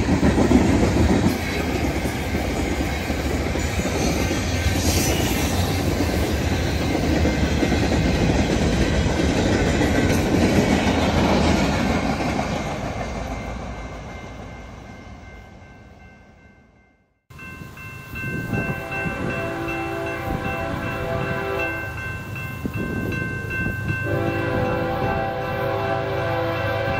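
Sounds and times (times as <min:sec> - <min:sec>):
freight train rolling on rails: 0:00.0 - 0:26.9
locomotive horn: 0:18.7 - 0:22.0, 0:24.0 - 0:26.9.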